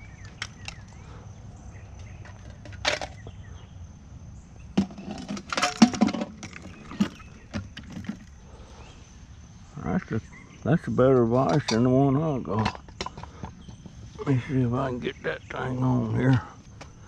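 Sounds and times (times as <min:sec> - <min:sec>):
knocks and rattles: 0:04.8 - 0:08.4.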